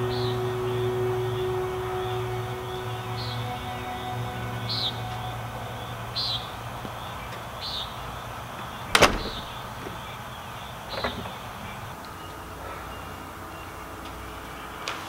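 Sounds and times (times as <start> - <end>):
door latching bang: 8.9 - 9.7.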